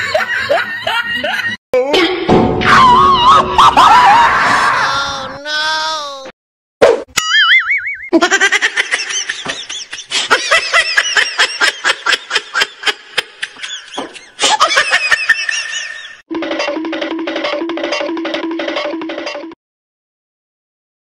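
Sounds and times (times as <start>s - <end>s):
laughter in rapid bursts: 0.0s - 1.6s, 8.1s - 16.2s
short warbling tone: 7.2s - 8.2s.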